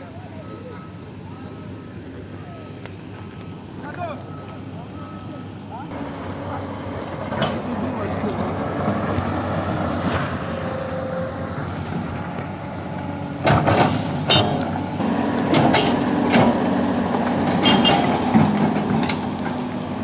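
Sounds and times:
large vehicle engine running: 0.0s - 20.0s
sharp knocks and clanks: 13.4s - 14.8s, 15.4s - 19.3s.

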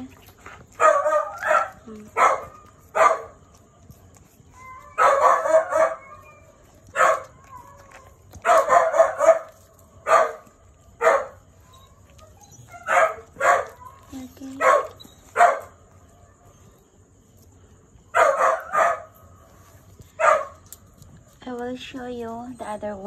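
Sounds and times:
dog barking: 0.7s - 3.6s, 4.9s - 11.4s, 12.7s - 15.8s, 18.1s - 19.2s, 20.1s - 20.6s.

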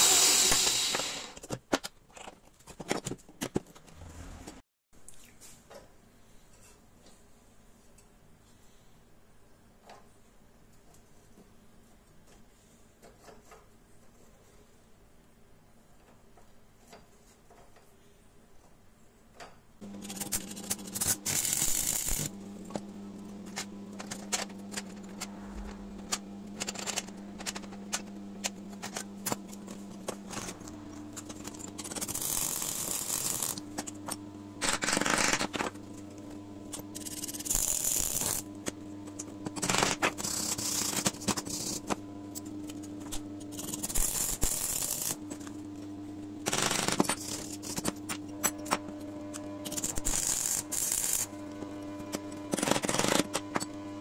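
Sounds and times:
arc welding crackling sizzle: 19.8s - 22.4s, 31.0s - 35.2s, 36.7s - 38.7s, 39.5s - 45.2s, 49.4s - 52.1s
steady low hum: 19.8s - 54.0s.

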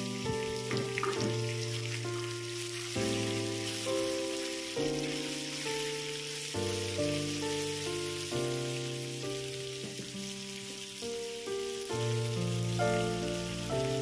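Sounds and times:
background music of held chords: 0.0s - 14.0s
beef sizzling in a wok: 0.0s - 14.0s.

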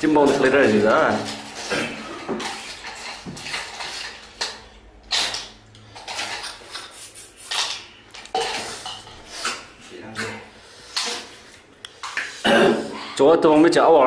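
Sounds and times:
noisy eating sounds: 0.0s - 14.0s.

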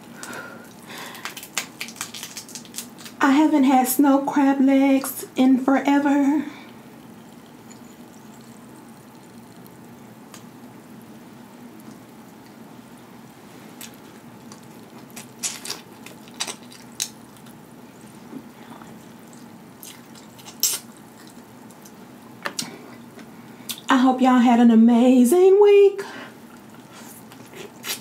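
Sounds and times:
faint steady hum: 0.0s - 28.0s
wet mouth sounds of eating: 7.0s - 10.5s, 13.8s - 22.0s, 26.5s - 28.0s.

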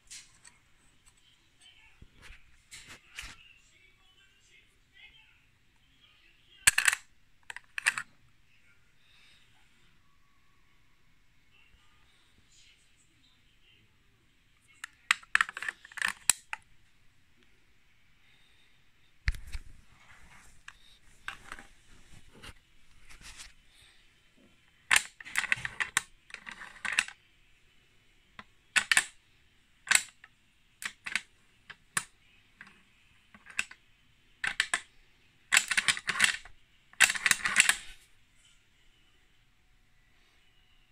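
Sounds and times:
rifle bolt clicking and clacking: 6.7s - 8.0s, 28.8s - 29.1s, 35.5s - 36.4s, 37.0s - 37.8s.

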